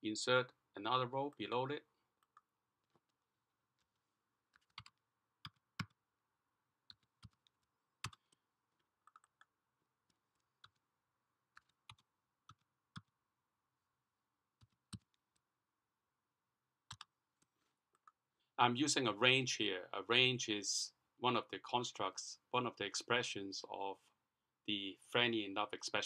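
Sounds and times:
faint keyboard typing: 0:02.2 - 0:06.0, 0:06.8 - 0:10.9, 0:11.5 - 0:13.2, 0:14.6 - 0:15.4, 0:16.8 - 0:18.2.

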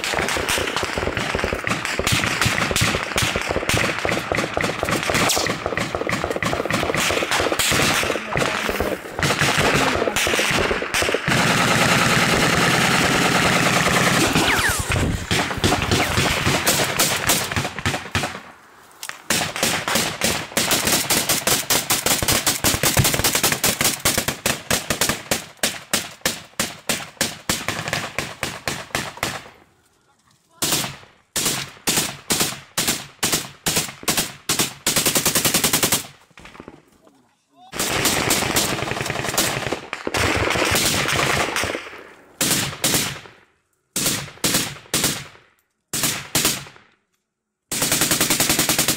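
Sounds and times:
automatic gunfire: 0:00.0 - 0:18.4, 0:19.3 - 0:29.5, 0:37.7 - 0:43.3, 0:44.0 - 0:46.9, 0:47.7 - 0:48.9.

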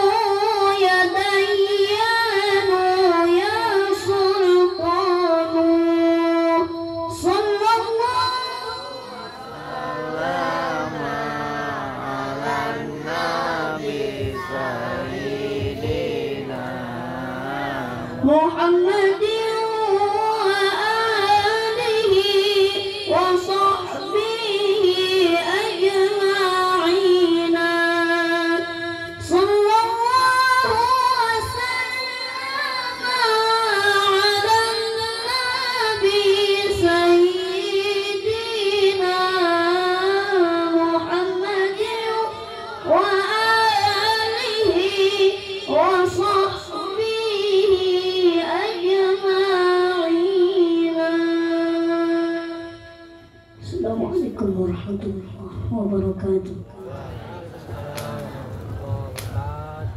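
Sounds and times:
child reciting melodically: 0:09.3 - 0:28.6.

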